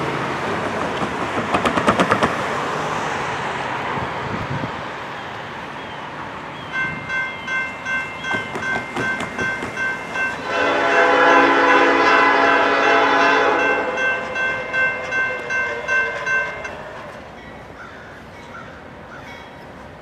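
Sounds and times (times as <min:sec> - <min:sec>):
crossing warning bell ringing: 0:06.6 - 0:18.5
locomotive air horn blast: 0:10.4 - 0:17.4.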